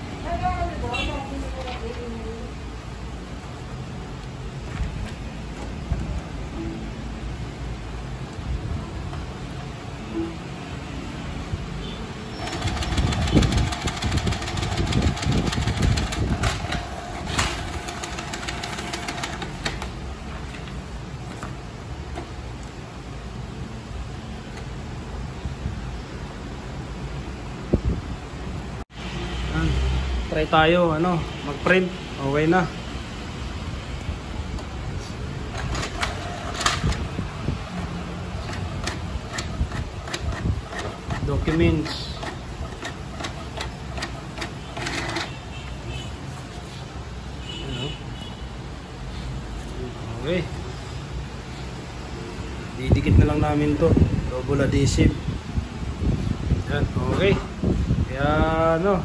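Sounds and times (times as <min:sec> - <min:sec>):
printer motor whine: 0:12.4 - 0:19.9
rapid clicking of print carriage: 0:12.4 - 0:20.7, 0:35.5 - 0:37.2, 0:37.8 - 0:45.4.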